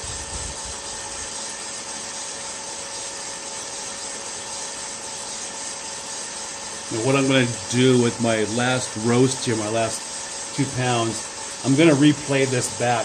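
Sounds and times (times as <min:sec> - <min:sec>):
coffee beans rustling in drum: 0:00.0 - 0:13.0
fan hiss: 0:00.0 - 0:13.0.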